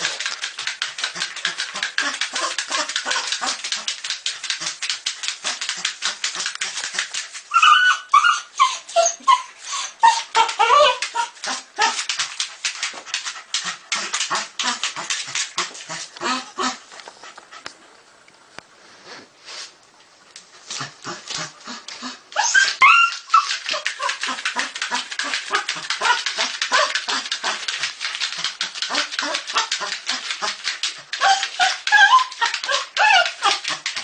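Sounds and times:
dog whining and yipping: 0:07.5 - 0:12.0, 0:22.3 - 0:27.2, 0:31.1 - 0:33.8.

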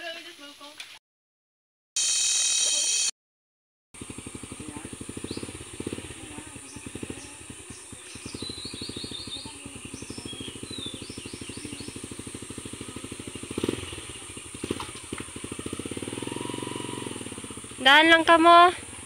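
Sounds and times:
birds chirping: 0:04.0 - 0:19.0
small motorcycle engine idling: 0:04.0 - 0:19.0.

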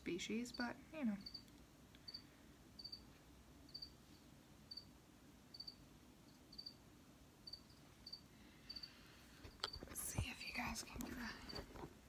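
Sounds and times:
cricket chirping: 0:01.2 - 0:01.5, 0:02.1 - 0:03.1, 0:03.7 - 0:04.0, 0:04.7 - 0:04.9, 0:05.5 - 0:06.8, 0:07.4 - 0:09.0.

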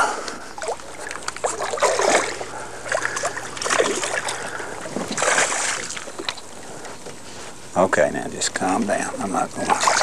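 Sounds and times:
fish splashing at water surface: 0:00.6 - 0:06.5, 0:09.7 - 0:10.0.

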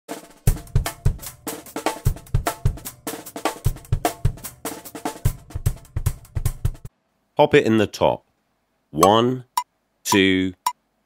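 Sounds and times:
drum kit playing a groove: 0:00.1 - 0:06.9.

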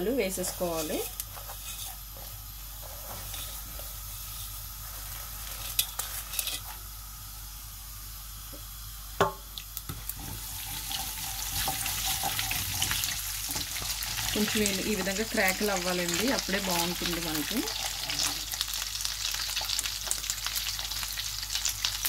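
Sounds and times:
seeds sizzling in hot oil: 0:00.0 - 0:22.0
wooden spoon stirring: 0:00.2 - 0:06.7, 0:10.2 - 0:15.7.

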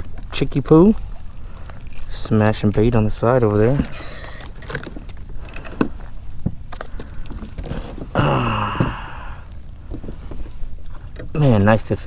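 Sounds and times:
short falling vocal sound: 0:08.1 - 0:09.5.

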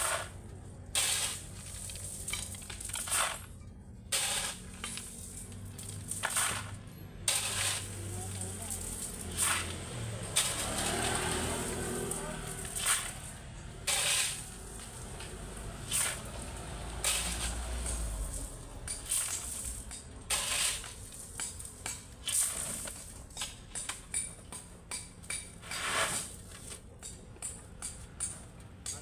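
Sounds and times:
shovel scraping gravel: 0:00.0 - 0:26.9
stones rattling: 0:01.1 - 0:03.5.

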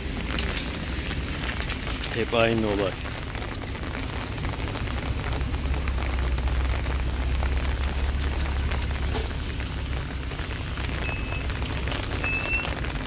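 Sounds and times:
heavy rain on wet paving: 0:00.0 - 0:13.0
low rumble: 0:02.9 - 0:12.3.

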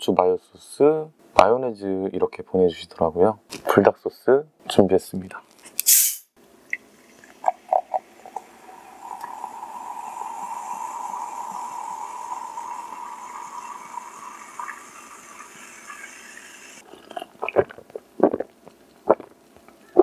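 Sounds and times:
soda pouring and fizzing: 0:06.8 - 0:17.8.

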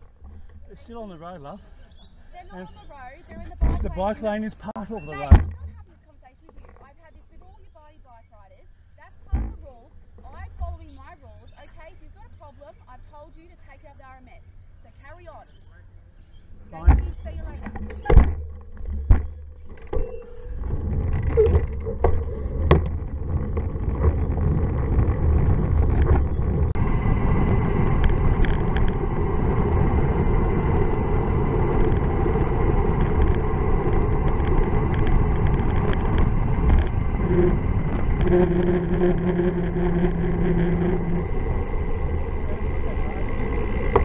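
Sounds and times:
bicycle tyre noise on road: 0:00.0 - 0:05.6, 0:06.2 - 0:44.0
steady low hum: 0:00.0 - 0:44.0
wind buffeting microphone: 0:16.4 - 0:44.0.

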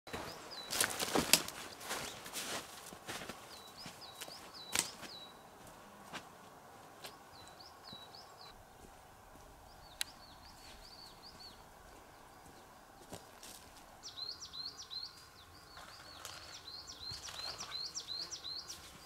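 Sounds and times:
songbird chirping: 0:00.1 - 0:19.0
sharp cracks and crunches: 0:00.7 - 0:01.6.

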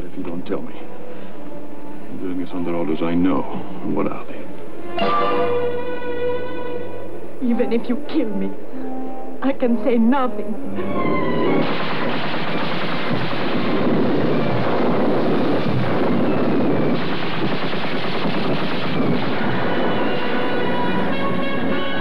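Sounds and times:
film soundtrack music: 0:00.0 - 0:22.0
machine-gun fire: 0:11.6 - 0:21.8.

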